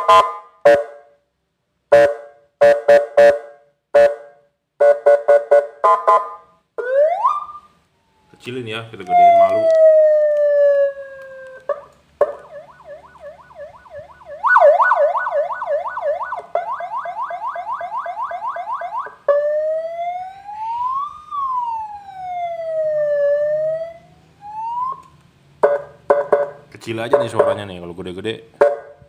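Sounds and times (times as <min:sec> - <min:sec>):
electronic siren through loudspeaker: 0:05.8 - 0:26.6.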